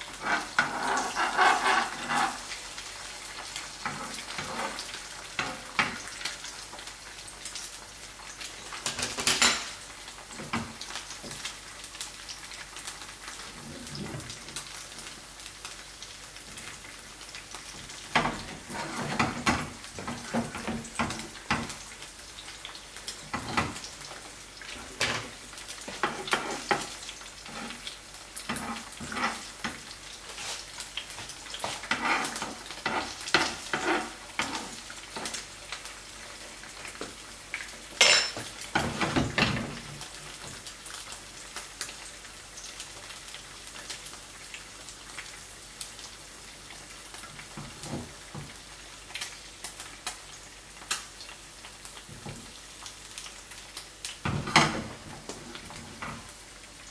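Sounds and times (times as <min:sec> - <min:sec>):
eggs sizzling in a frying pan: 0:00.0 - 0:56.9
utensil scraping and tapping pan: 0:00.2 - 0:02.4, 0:25.9 - 0:27.8, 0:28.5 - 0:29.8, 0:31.6 - 0:34.8.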